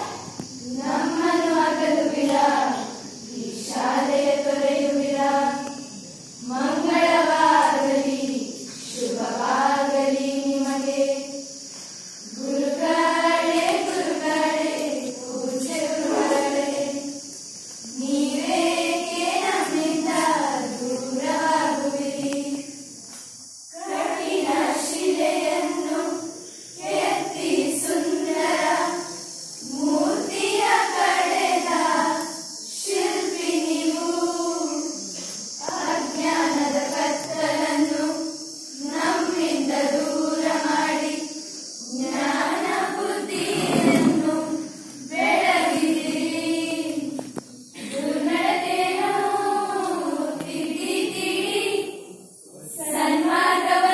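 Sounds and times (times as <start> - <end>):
girls choir singing unaccompanied: 0.0 - 53.9.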